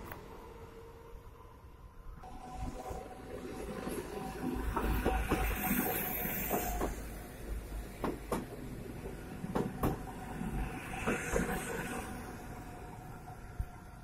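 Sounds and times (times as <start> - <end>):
steady train tone: 0.0 - 14.0
train wheels rumbling on rail: 2.2 - 14.0.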